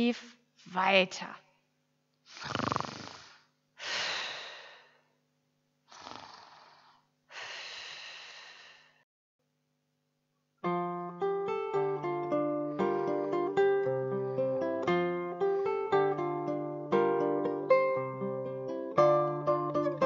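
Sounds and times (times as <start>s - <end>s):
person snoring: 2.3s - 3.5s, 5.9s - 7.1s
acoustic guitar: 10.6s - 20.0s.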